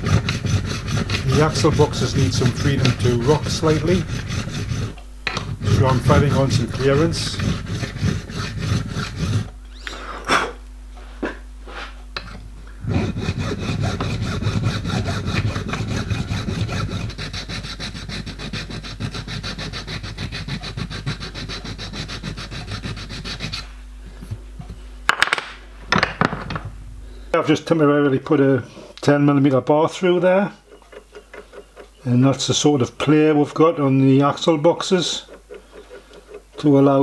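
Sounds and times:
hand file rubbing on brass: 0.0 - 9.5, 12.8 - 23.8, 29.9 - 37.0.

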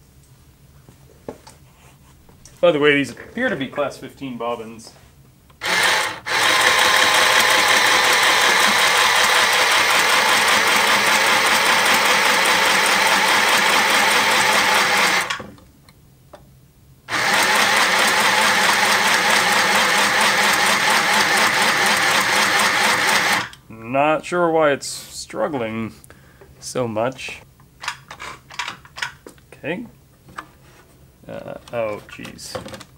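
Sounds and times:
sewing machine motor whirring: 5.6 - 15.4, 17.1 - 23.6.

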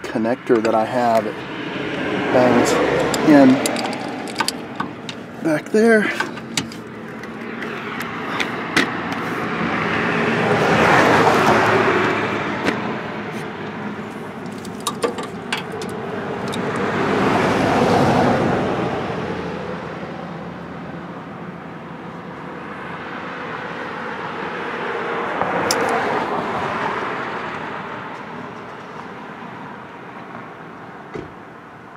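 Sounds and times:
vehicles passing: 0.0 - 31.9
hand tools clinking: 2.6 - 8.6, 13.6 - 16.8.

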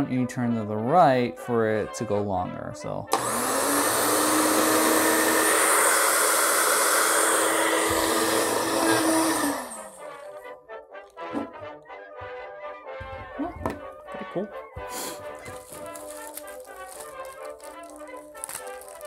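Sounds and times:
blender motor whining: 3.1 - 10.3.

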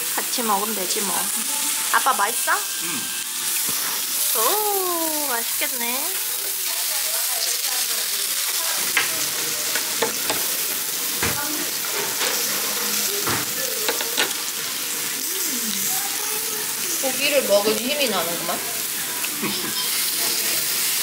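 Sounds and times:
steak sizzling on a hot plate: 0.0 - 21.0.

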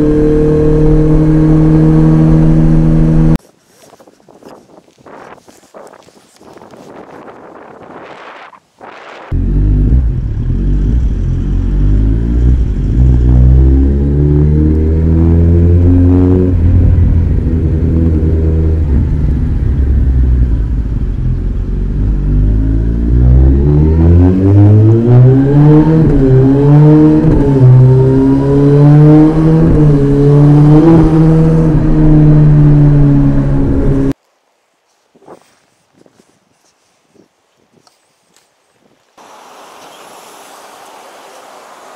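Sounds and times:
motorcycle engine revving: 0.0 - 3.4, 9.2 - 34.2.

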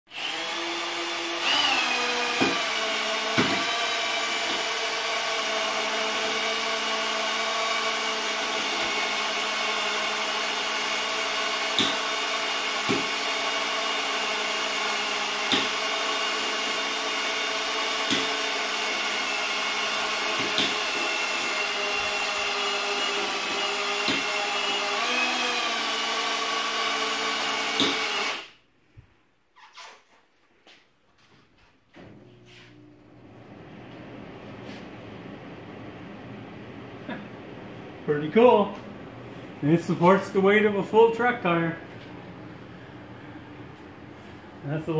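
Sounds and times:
cordless drill running: 0.1 - 28.6.

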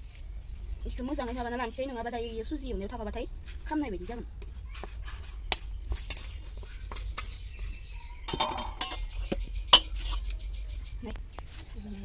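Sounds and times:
spatula scraping metal wok: 3.3 - 10.6
sharp metallic knocks: 8.3 - 10.0.

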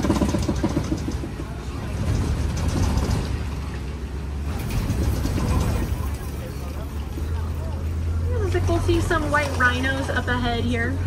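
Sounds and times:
vehicle body rattling and knocking: 0.0 - 8.0
truck engine and road rumble: 0.0 - 11.0.

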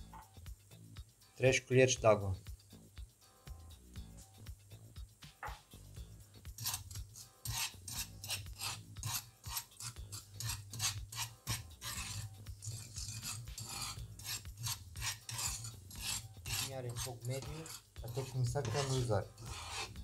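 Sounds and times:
metal spoon scraping frying pan: 6.6 - 20.0.

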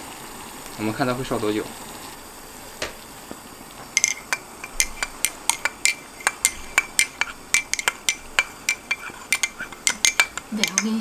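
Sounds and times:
spoon clinking in a mug: 4.0 - 11.0.

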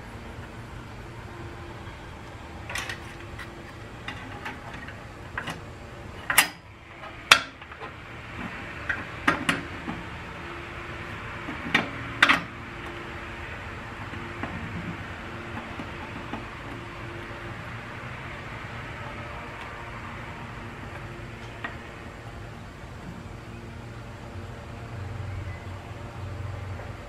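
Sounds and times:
steady low hum: 0.0 - 27.0
metal parts clicking and clanking: 2.6 - 5.6, 6.2 - 10.0, 11.4 - 13.0.

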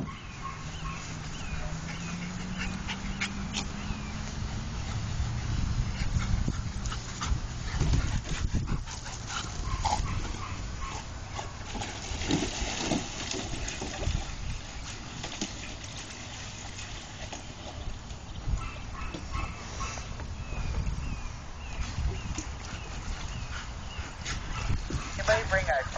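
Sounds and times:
dogs vocalizing: 0.0 - 11.9, 18.4 - 25.9.

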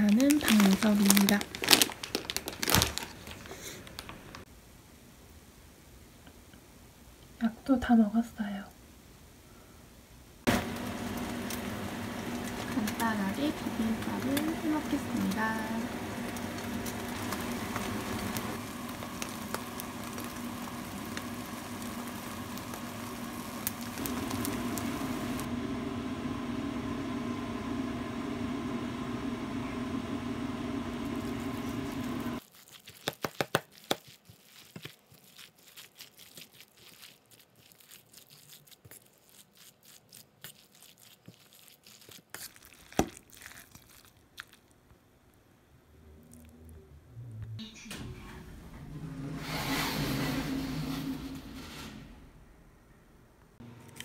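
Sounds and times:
steady low hum: 46.0 - 54.0.

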